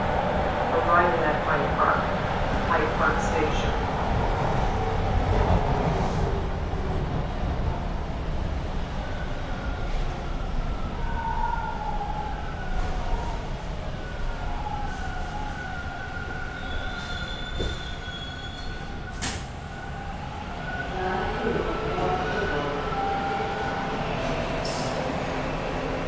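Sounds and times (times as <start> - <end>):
high wheel squeal: 16.6 - 18.9.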